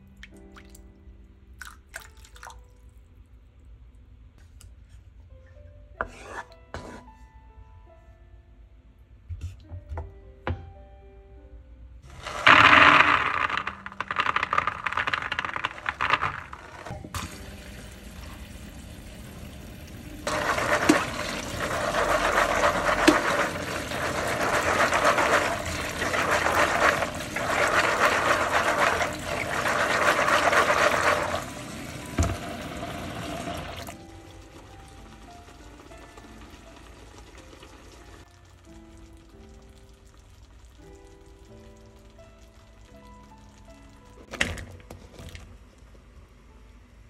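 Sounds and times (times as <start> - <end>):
peas tipped into plastic colander: 12.1 - 17.0, 20.3 - 31.6
tap water running into sink: 12.2 - 35.3.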